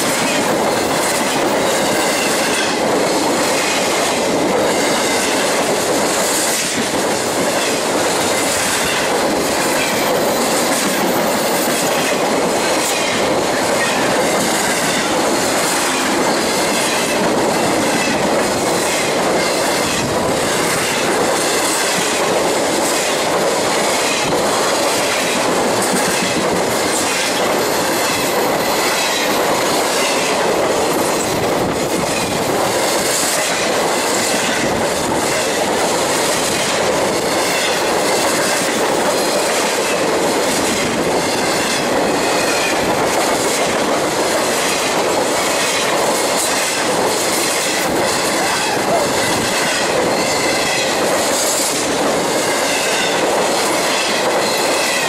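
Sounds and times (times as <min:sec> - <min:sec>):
freight train wheels rumbling: 0:00.0 - 0:55.0.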